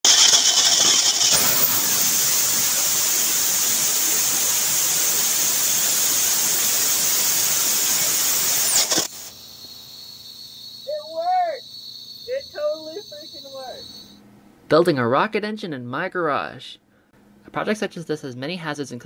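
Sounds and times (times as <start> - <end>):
rocket engine exhaust hiss: 0.1 - 9.9.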